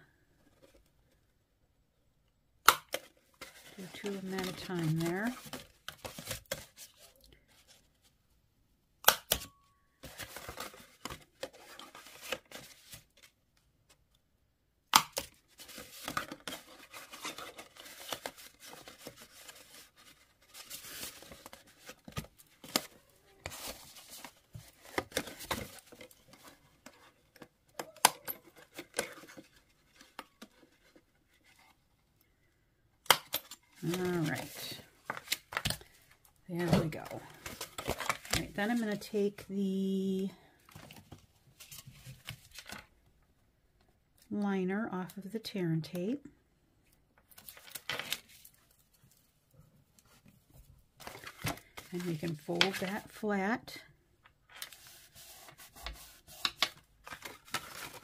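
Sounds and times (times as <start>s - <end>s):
cardstock rustling: 2.9s - 7.9s, 15.2s - 31.7s, 33.8s - 39.4s, 51.0s - 53.2s, 54.6s - 58.0s.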